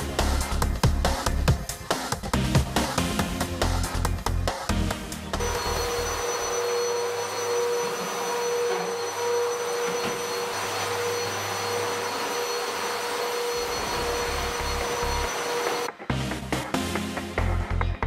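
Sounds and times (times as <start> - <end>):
vacuum cleaner running: 5.4 - 16.0.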